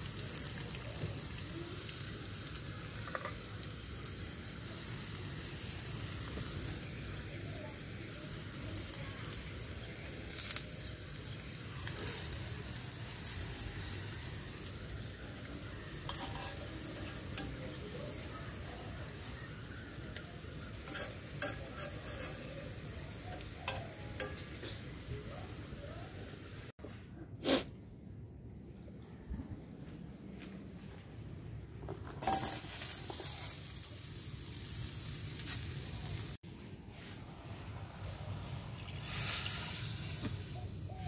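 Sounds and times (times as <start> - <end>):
bread sizzling in a frying pan: 0.0 - 26.7, 32.2 - 41.0
metal spoon clinking and scraping: 16.0 - 17.9, 20.8 - 24.7.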